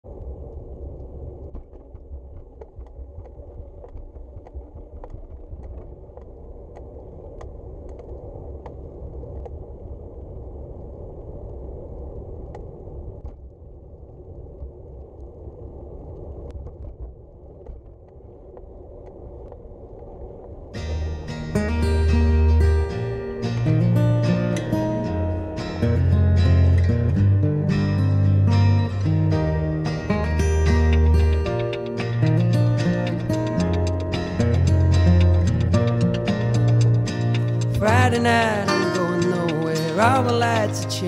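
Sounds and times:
wind on microphone: 0.0s - 41.0s
bicycle tyres on asphalt: 0.1s - 20.8s.

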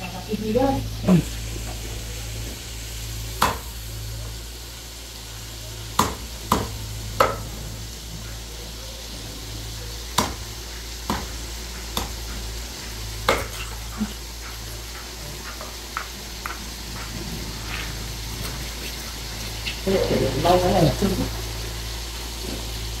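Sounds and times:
cleaver chopping on wooden block: 3.4s - 3.7s, 6.0s - 7.4s, 10.2s - 10.4s.

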